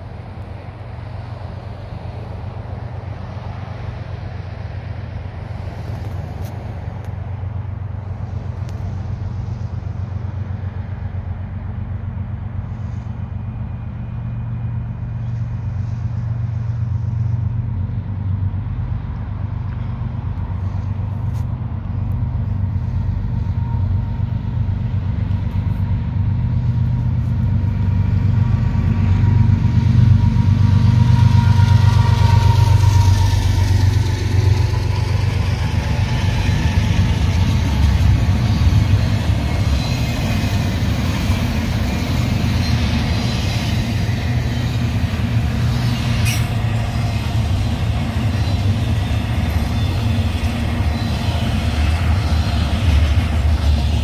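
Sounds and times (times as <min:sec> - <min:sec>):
diesel locomotive engine drone: 0:00.0 - 0:54.0
train cars rolling over rails: 0:00.0 - 0:54.0.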